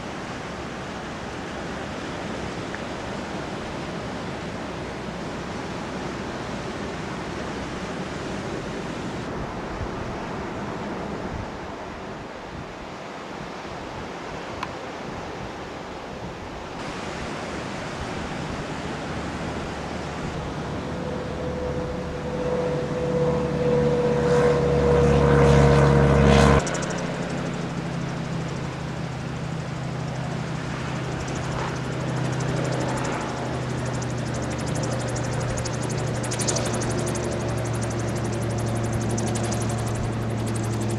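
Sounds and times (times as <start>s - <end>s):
propeller aircraft engine whine: 0.0s - 13.3s, 16.8s - 40.9s
wind buffeting microphone: 15.2s - 40.9s
gyroplane engine drone: 16.8s - 40.9s.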